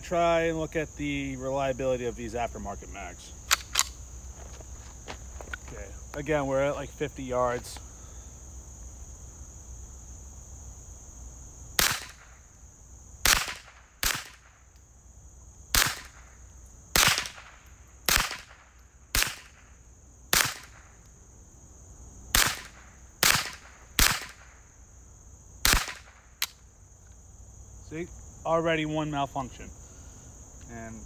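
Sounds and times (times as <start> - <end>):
crickets buzzing: 0.0 - 31.0
rifle shots: 11.8 - 12.4, 13.2 - 14.6, 15.7 - 16.3, 16.9 - 19.7, 20.3 - 20.9, 22.3 - 24.6, 25.6 - 26.6.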